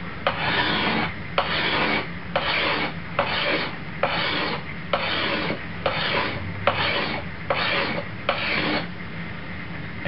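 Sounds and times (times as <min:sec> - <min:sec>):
knife rasping on sharpening stone: 0:00.3 - 0:08.9.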